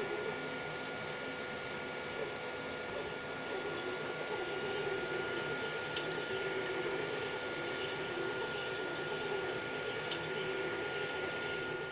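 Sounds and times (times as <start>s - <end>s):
printer fans and motors whirring: 0.0s - 11.9s.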